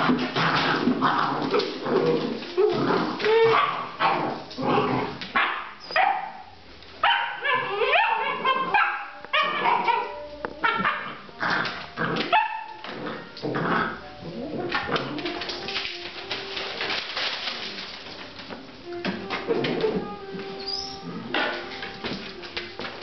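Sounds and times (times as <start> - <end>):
puppies yapping: 3.1 - 4.0, 5.4 - 13.3, 20.6 - 21.3
puppies yelping and whining: 7.4 - 13.2, 20.6 - 21.3.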